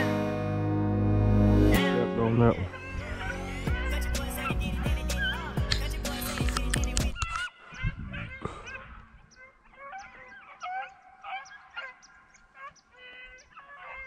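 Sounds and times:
hounds baying: 0:02.6 - 0:14.0.

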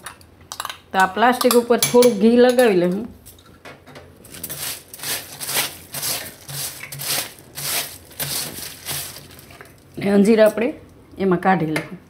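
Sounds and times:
plastic sheet rustling: 0:04.2 - 0:10.1.

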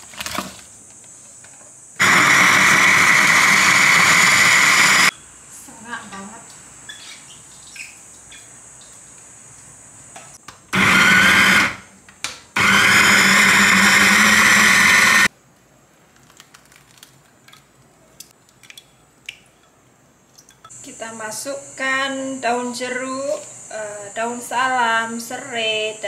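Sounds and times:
electric food chopper blending: 0:02.0 - 0:05.1, 0:10.8 - 0:11.8, 0:12.6 - 0:15.3.

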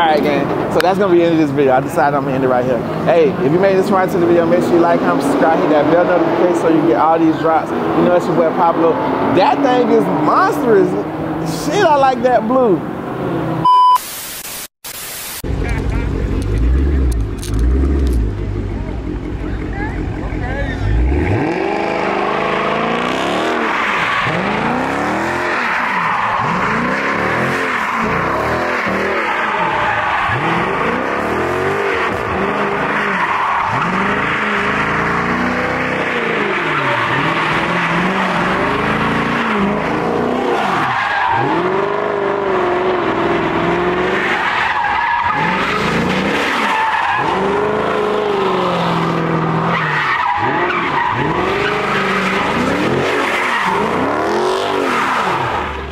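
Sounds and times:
car engine revving: 0:00.0 - 0:13.6, 0:15.4 - 0:55.9
tyres squealing: 0:20.7 - 0:42.7, 0:43.6 - 0:55.8.

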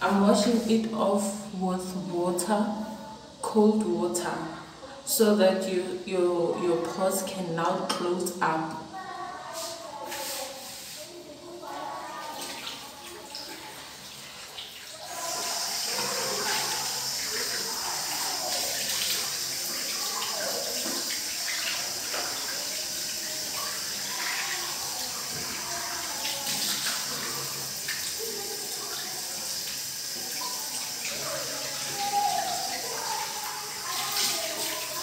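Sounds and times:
tap water running into sink: 0:07.6 - 0:08.9, 0:11.7 - 0:35.0.

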